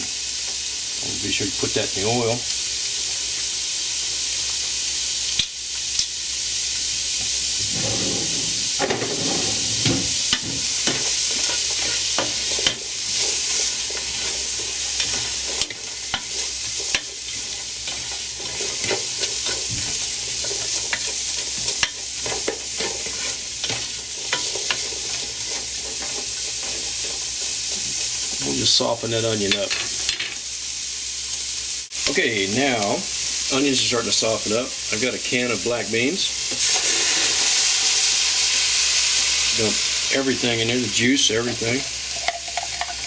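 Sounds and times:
onion sizzling in hot oil: 0.0s - 43.0s
spatula scraping metal pot: 7.6s - 19.8s.

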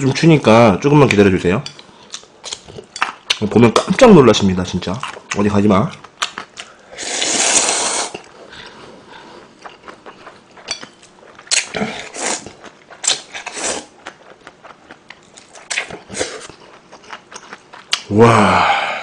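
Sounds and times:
person slurping noodles: 7.0s - 8.3s, 11.7s - 12.6s.

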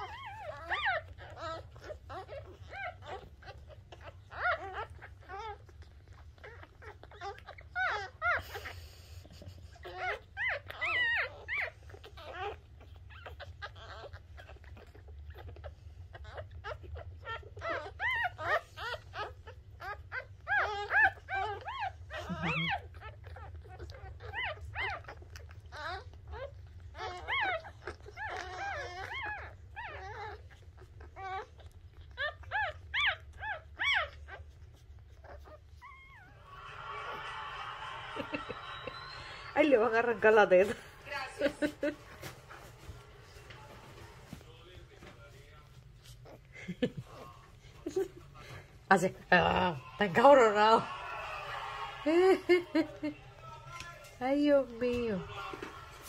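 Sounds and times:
puppies squeaking and whimpering: 0.0s - 37.3s, 38.2s - 50.7s.

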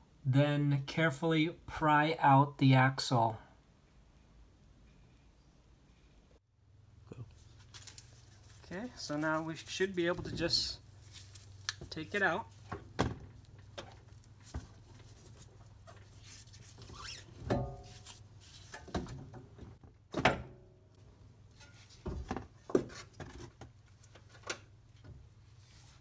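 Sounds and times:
metal clunks and knocks: 17.4s - 17.8s.

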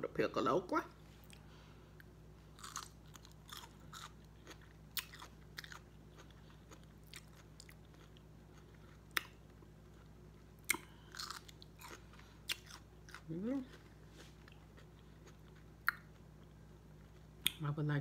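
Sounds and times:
person chewing crunchy food: 1.2s - 17.5s.

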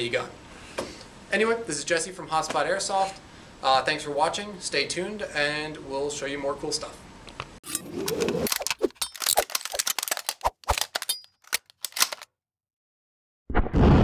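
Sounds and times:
gunfire-like cracks and clicks: 10.6s - 12.3s
rumbling boom: 13.5s - 14.0s.

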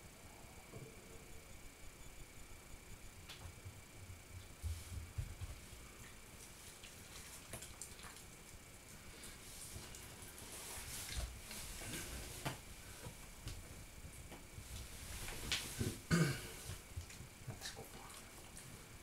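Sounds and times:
soft rustling: 4.3s - 19.0s
low throat sound: 15.8s - 16.6s.

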